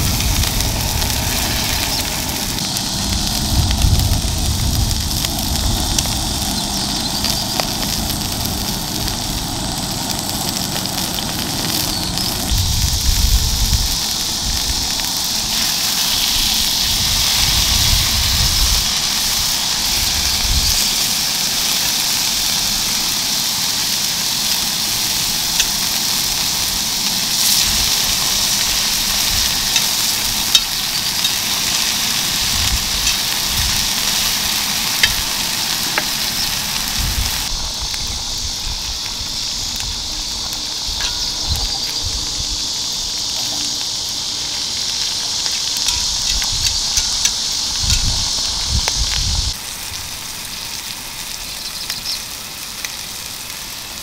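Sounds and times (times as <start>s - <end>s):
meat sizzling on griddle: 0.0s - 54.0s.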